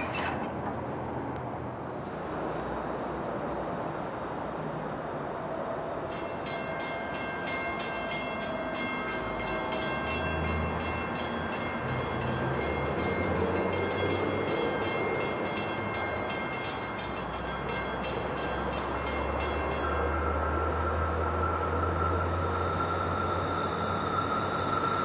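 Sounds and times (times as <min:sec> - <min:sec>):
train low rumble: 0:00.0 - 0:25.0
rapid ringing high tones: 0:06.4 - 0:25.0.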